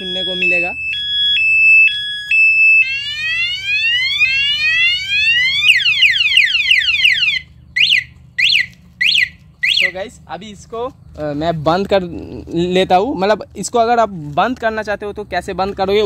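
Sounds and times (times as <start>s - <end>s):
motorcycle alarm siren: 0.0s - 10.0s.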